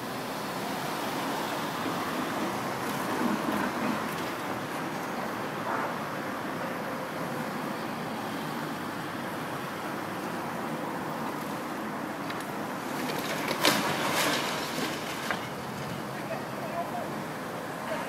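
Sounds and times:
street traffic: 0:00.0 - 0:18.0
masonry crashing and clattering: 0:13.0 - 0:16.0.

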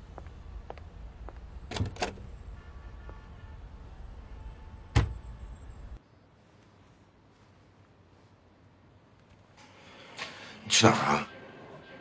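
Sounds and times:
faint footsteps: 0:00.0 - 0:01.6
door shutting thud: 0:04.9 - 0:05.3.

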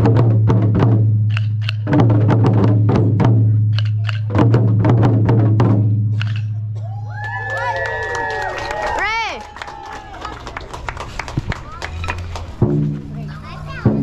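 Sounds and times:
taiko drum strikes: 0:00.0 - 0:06.4, 0:12.6 - 0:14.0
wooden stick clicks: 0:01.3 - 0:01.9, 0:03.7 - 0:04.3, 0:06.2 - 0:06.6.

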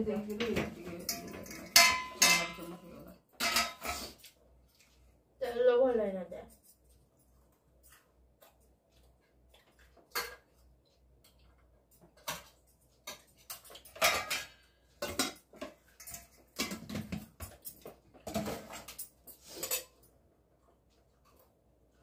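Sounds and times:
dishes and utensils clattering: 0:00.0 - 0:04.4, 0:09.6 - 0:10.6, 0:11.3 - 0:20.2.

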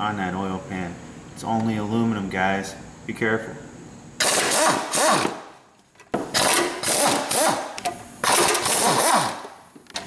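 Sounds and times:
impact gun spinning bolts: 0:06.0 - 0:10.0.

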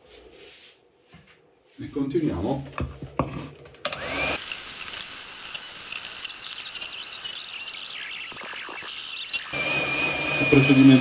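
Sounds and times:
electric hand mixer whirring: 0:03.9 - 0:11.0.

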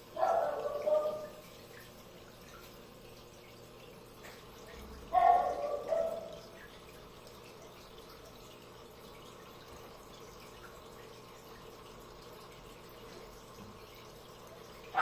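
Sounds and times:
aquarium water trickling: 0:00.0 - 0:15.0.

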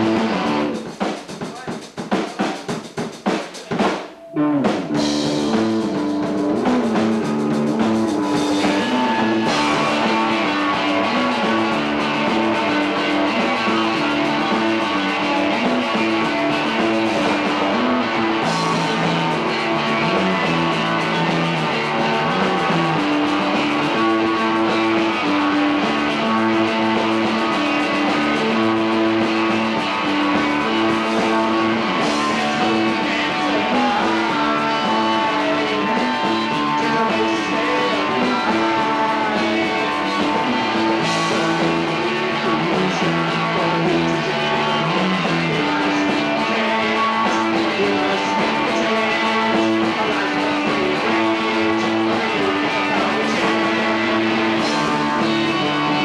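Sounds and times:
rock band playing a riff: 0:00.0 - 0:56.0.

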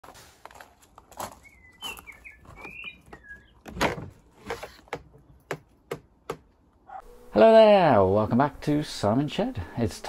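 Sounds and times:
footsteps on gravel: 0:00.0 - 0:03.6
bird chirping: 0:01.3 - 0:03.8.

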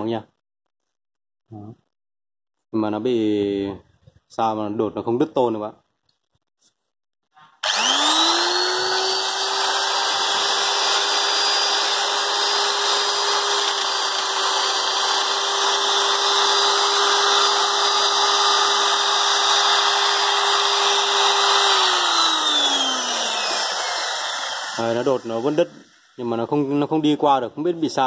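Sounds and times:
nibbler motor humming and whining: 0:07.6 - 0:26.2.

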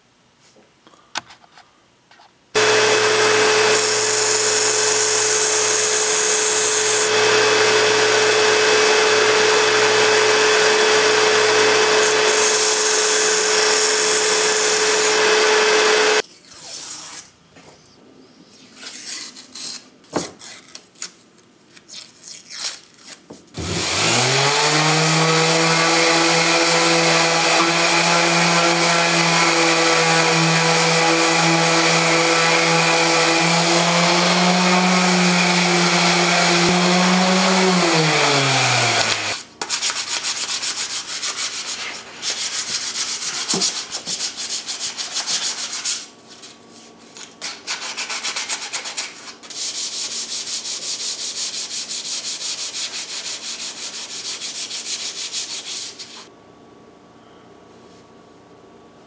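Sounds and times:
electric sander running: 0:02.6 - 0:16.2, 0:23.6 - 0:39.4
sandpaper rubbed on wood: 0:24.6 - 0:56.3.

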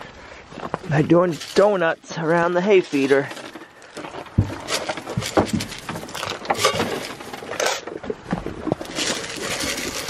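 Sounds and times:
small knocks: 0:03.3 - 0:08.8
grain rattling in metal can: 0:04.4 - 0:07.8, 0:08.8 - 0:10.0.

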